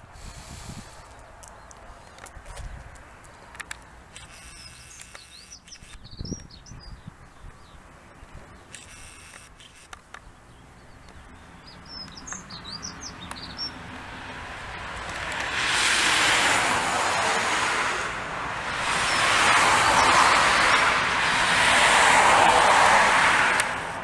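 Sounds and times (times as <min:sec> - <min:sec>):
small birds chirping: 0:00.9 - 0:13.9
loud rushing noise: 0:14.0 - 0:24.0.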